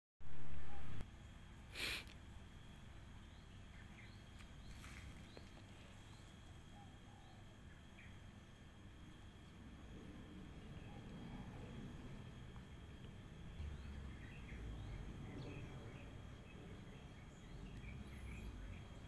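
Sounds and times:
faint bird chirps: 0:00.3 - 0:01.0, 0:02.8 - 0:12.4
high insect drone: 0:00.3 - 0:19.0.

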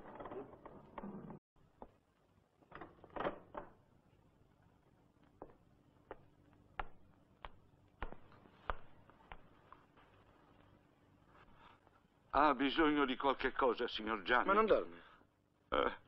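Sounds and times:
footsteps on tiled floor: 0:04.8 - 0:10.8.

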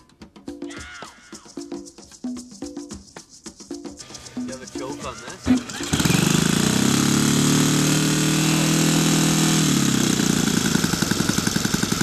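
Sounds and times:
model airplane engine idling: 0:04.4 - 0:12.0.

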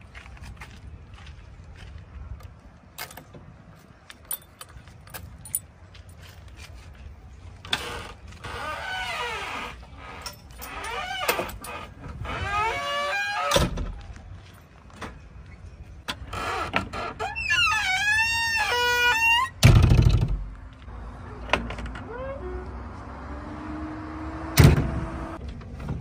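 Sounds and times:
keys jangling in door lock: 0:04.2 - 0:05.7
door squeaking: 0:07.7 - 0:14.0, 0:16.1 - 0:20.4, 0:21.3 - 0:22.7.

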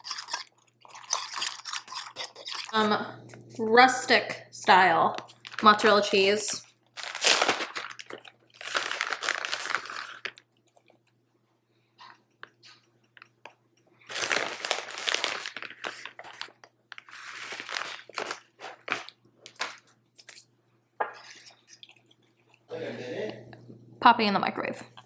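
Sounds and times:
plastic bag crinkling: 0:04.8 - 0:11.0, 0:14.0 - 0:20.4.

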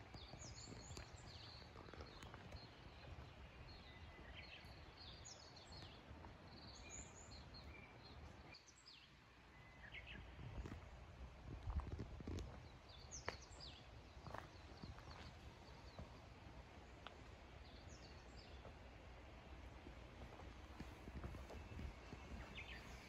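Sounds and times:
birds chirping: 0:00.0 - 0:11.0, 0:12.4 - 0:18.9, 0:19.6 - 0:23.0
faint low background noise: 0:12.6 - 0:23.0.

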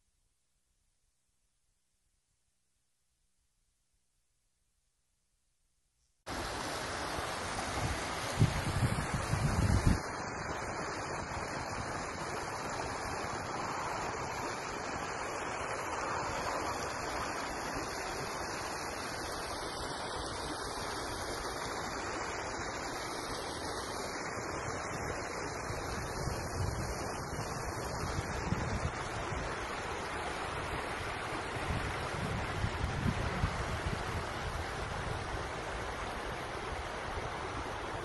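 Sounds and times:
stream rushing over rocks: 0:06.3 - 0:38.0
wind buffeting microphone: 0:07.8 - 0:10.1, 0:26.0 - 0:29.6, 0:31.6 - 0:35.4.

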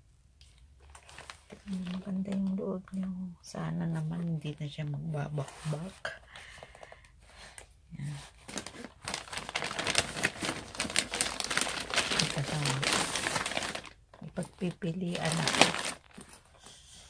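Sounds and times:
packaging crinkling and rustling: 0:00.4 - 0:02.6, 0:05.4 - 0:16.7.

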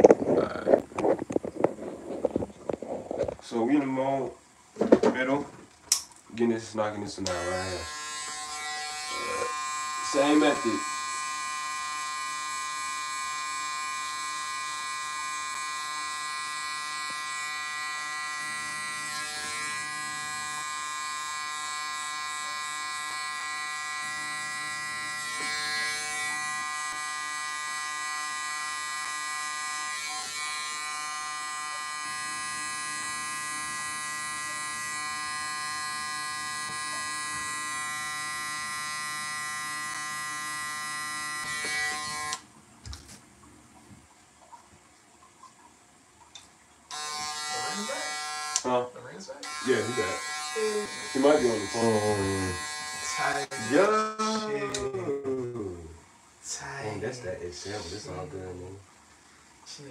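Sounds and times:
electric hair clippers buzzing: 0:07.2 - 0:42.5, 0:46.9 - 0:48.7, 0:49.4 - 0:54.9.

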